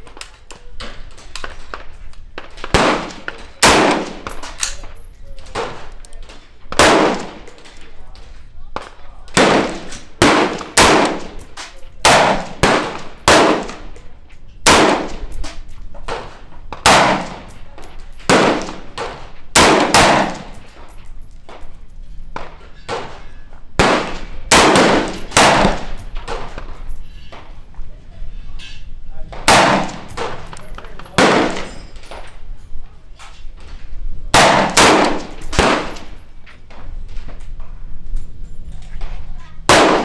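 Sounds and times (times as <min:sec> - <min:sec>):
rifle shots with ringing echo: 0:02.6 - 0:04.7, 0:06.7 - 0:07.7, 0:09.3 - 0:14.0, 0:14.6 - 0:15.4, 0:16.2 - 0:20.8, 0:23.8 - 0:26.8, 0:29.4 - 0:32.0, 0:34.3 - 0:36.2, 0:39.7 - 0:40.0.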